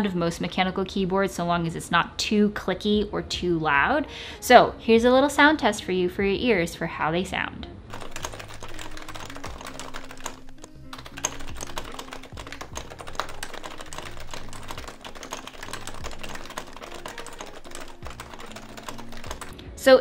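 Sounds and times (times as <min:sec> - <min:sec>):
background music with low notes: 0:00.0 - 0:20.0
rapid typing on keyboard: 0:07.9 - 0:19.6.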